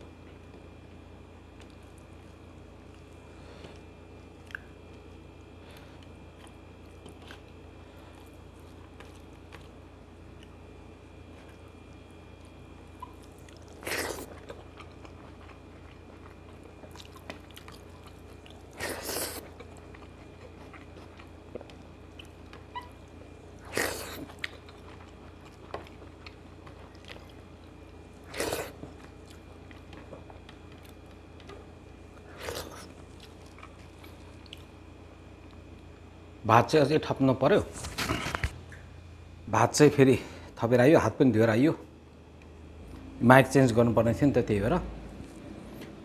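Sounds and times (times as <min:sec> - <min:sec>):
low electrical hum: 0:00.0 - 0:46.0
person chewing food: 0:01.3 - 0:35.9.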